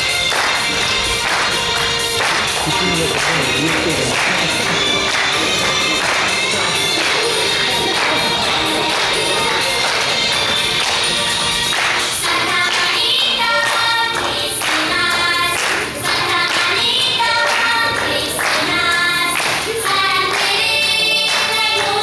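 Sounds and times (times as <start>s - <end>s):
music accompaniment with steady beat: 0.0s - 22.0s
women singing: 11.7s - 22.0s
children singing worship song: 11.8s - 22.0s.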